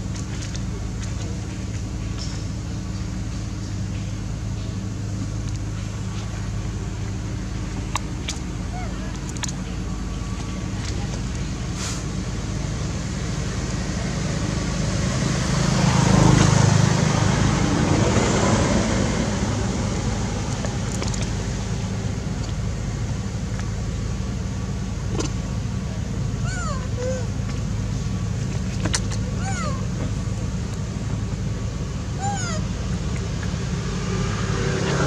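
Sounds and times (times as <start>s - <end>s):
traffic engine hum: 0.0s - 35.0s
vehicle passing: 13.0s - 22.5s, 32.2s - 35.0s.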